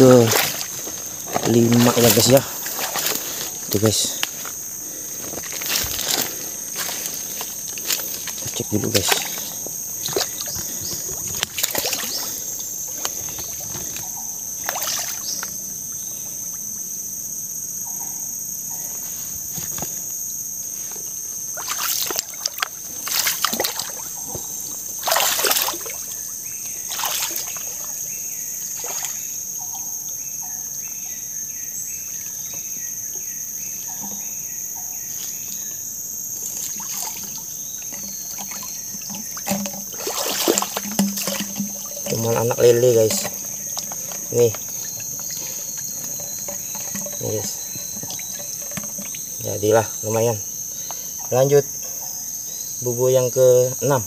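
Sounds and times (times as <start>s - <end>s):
wading splashes in water: 0.0s - 15.5s, 21.6s - 29.4s, 36.3s - 50.4s
high-pitched insect drone: 0.0s - 54.0s.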